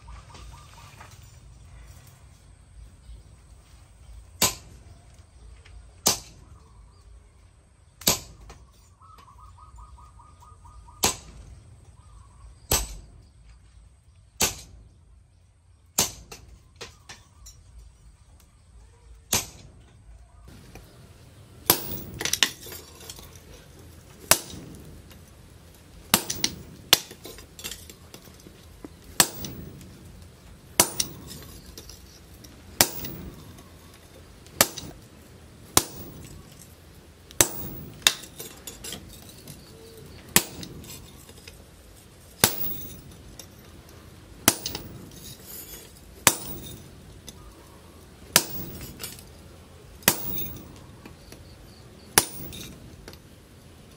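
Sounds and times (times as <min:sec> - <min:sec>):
sledgehammer striking chisel on metal: 0:04.4 - 0:04.8, 0:14.4 - 0:14.8, 0:20.5 - 0:29.9, 0:30.8 - 0:35.1, 0:35.7 - 0:36.7, 0:37.3 - 0:41.6, 0:42.4 - 0:43.7, 0:44.4 - 0:47.4, 0:48.3 - 0:49.3, 0:50.0 - 0:51.2, 0:52.1 - 0:53.2.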